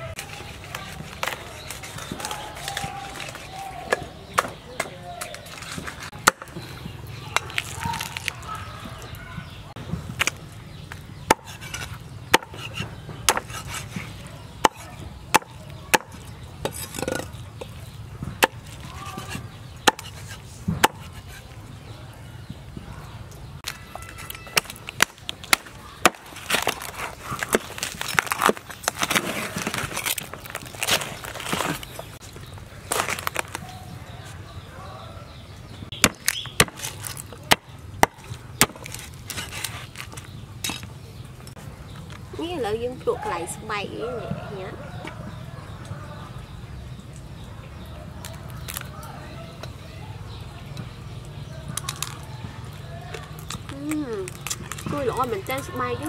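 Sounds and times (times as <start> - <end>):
cleaver chopping on wooden board: 11.3 - 17.3, 18.3 - 21.2, 35.9 - 39.6.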